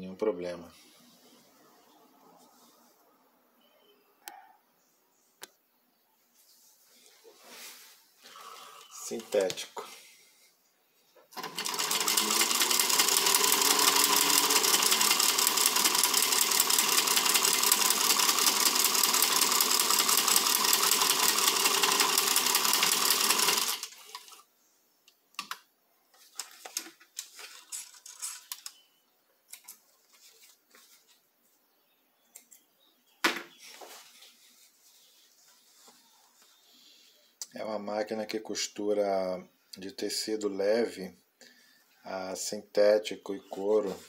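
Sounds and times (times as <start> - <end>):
sewing machine stitching: 11.3 - 24.4
faint clicks and rustles: 25.4 - 28.8, 29.4 - 31.6.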